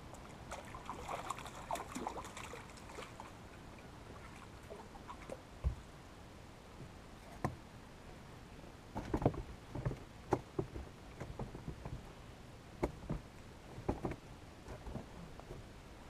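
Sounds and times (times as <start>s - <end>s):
light knocks and clicks in boat: 5.1s - 5.9s, 6.7s - 12.2s, 12.8s - 15.8s.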